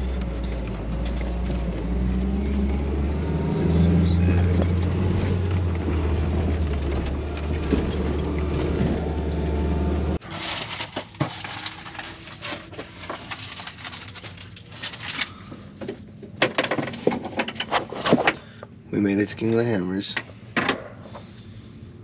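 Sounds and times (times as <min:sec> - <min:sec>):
engine and road rumble: 0:00.0 - 0:22.0.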